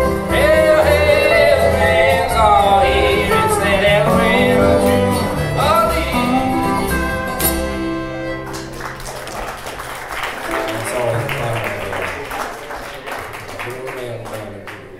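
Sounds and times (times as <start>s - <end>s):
country string band playing: 0.0s - 11.9s.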